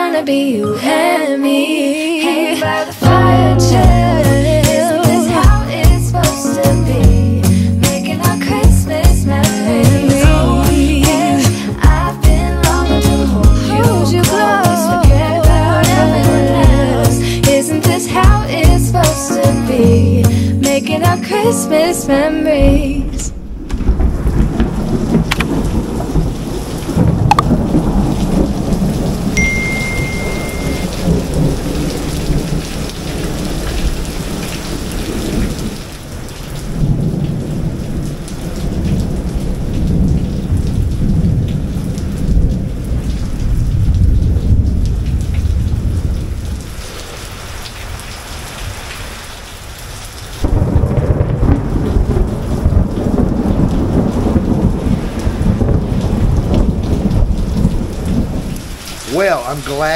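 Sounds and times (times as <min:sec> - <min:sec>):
heavy rain on pavement: 0:03.8 - 0:19.0, 0:22.6 - 0:59.9
thunder rumbling: 0:22.1 - 0:48.0, 0:50.4 - 0:59.2.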